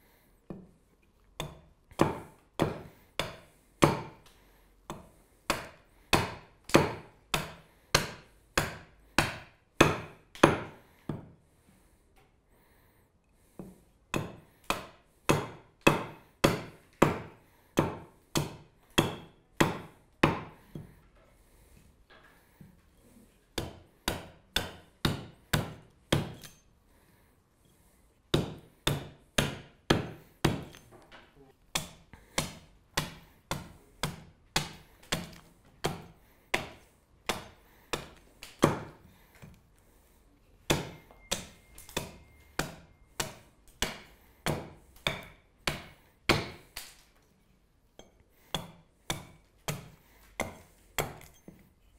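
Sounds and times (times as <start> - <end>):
axe chopping wood: 1.4 - 4.3, 4.9 - 11.3, 13.6 - 20.9, 23.6 - 26.6, 28.3 - 30.9, 31.7 - 39.5, 40.7 - 47.0, 48.0 - 51.6.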